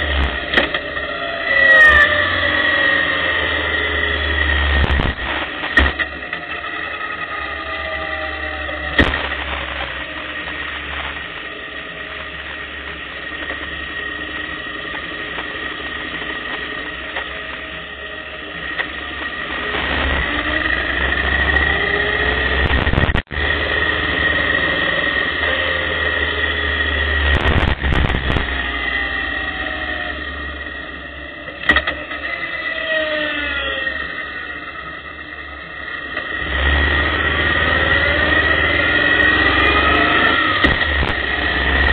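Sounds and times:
motorcycle engine running: 0.0s - 41.9s
wind noise on microphone: 22.6s - 23.4s, 27.3s - 28.6s.

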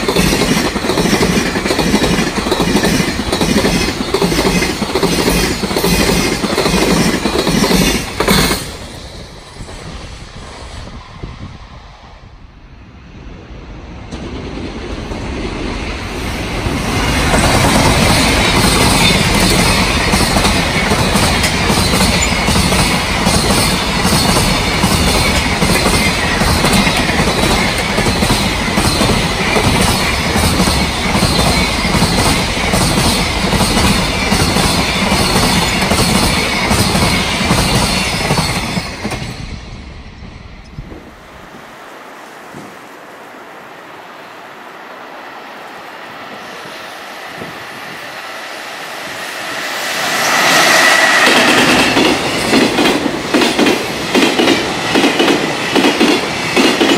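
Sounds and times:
train wheels rumbling on rails: 0.0s - 41.8s, 45.5s - 56.9s.

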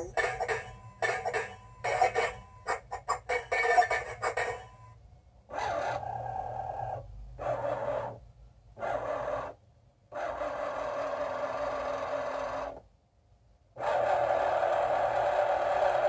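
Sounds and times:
small motor running: 8.8s - 12.8s, 13.8s - 16.0s.

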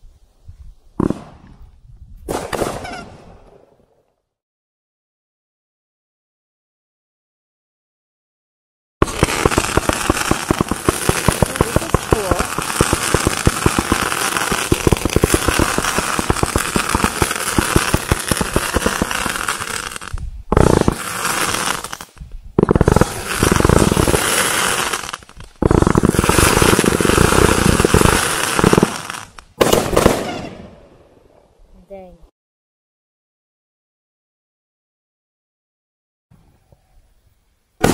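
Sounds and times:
firework cake crackling and bursting: 2.2s - 3.2s, 9.0s - 30.6s.

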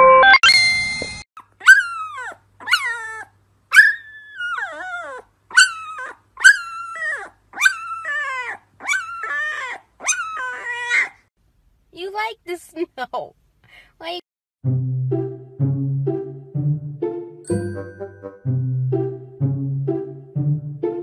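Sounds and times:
puppy yelping howls: 1.6s - 11.3s.

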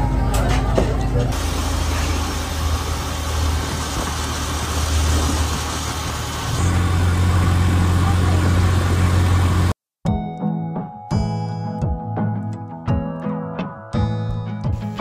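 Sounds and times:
road noise: 0.0s - 9.8s
motorcycle engine running: 1.4s - 9.7s.

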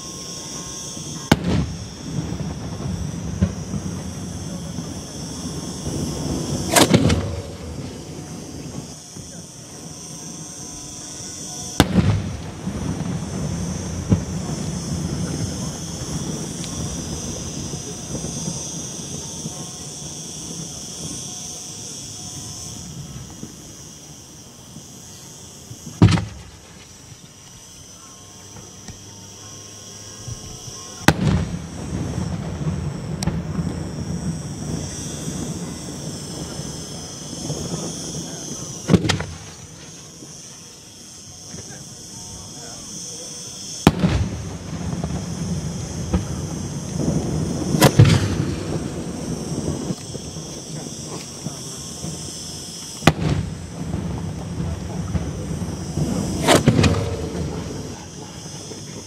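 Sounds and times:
firework bang: 1.1s - 9.4s, 11.7s - 21.2s, 25.8s - 27.0s, 30.3s - 40.0s, 43.8s - 52.3s, 53.0s - 59.0s
small firework crack: 1.2s - 9.4s, 11.8s - 21.2s, 25.8s - 27.6s, 31.0s - 40.4s, 43.8s - 59.0s.

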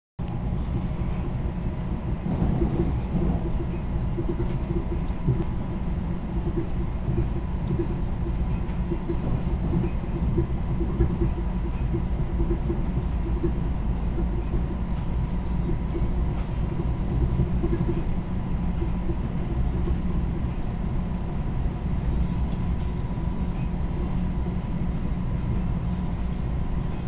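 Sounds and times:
train rumbling at speed: 0.2s - 27.0s.

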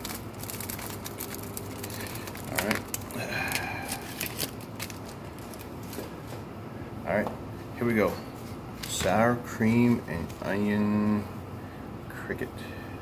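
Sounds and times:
plastic snack bag crinkling: 0.0s - 6.1s.

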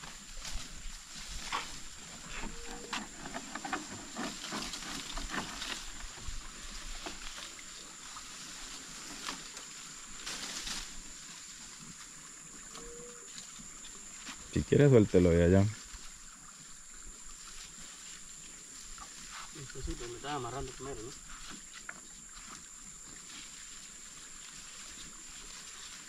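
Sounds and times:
night insects droning: 0.0s - 26.0s
knocks and clicks in canoe: 1.5s - 7.3s.

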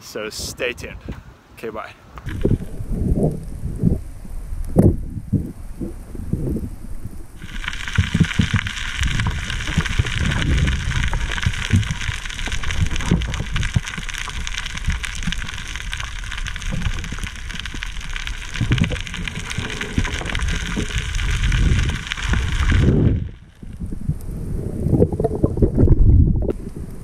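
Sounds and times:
steady hiss: 0.0s - 25.0s
underwater rumble and sloshing: 2.2s - 27.0s
faint clicks: 6.5s - 24.4s.

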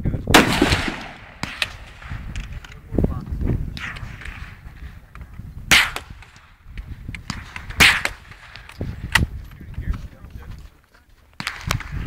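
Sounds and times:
rifle shots with echo: 0.3s - 2.5s, 5.7s - 6.6s, 7.2s - 9.3s, 11.4s - 12.0s.

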